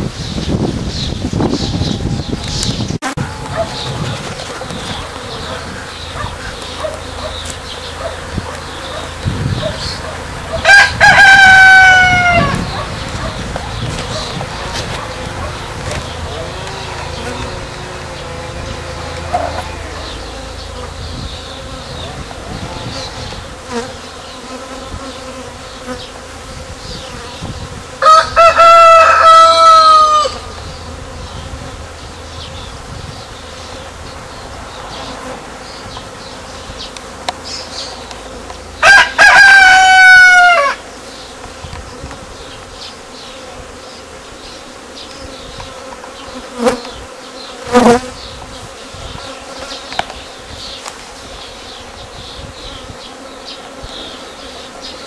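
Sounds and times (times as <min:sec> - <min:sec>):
bees buzzing: 0:00.0 - 0:55.0
rooster crowing: 0:03.2 - 0:04.2, 0:10.5 - 0:13.3, 0:28.0 - 0:30.6, 0:38.8 - 0:40.9.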